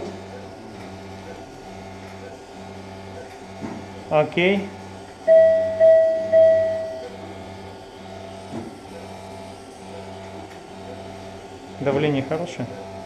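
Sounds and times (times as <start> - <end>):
low machine hum: 0.0 - 13.0
high electronic beep: 5.3 - 7.1.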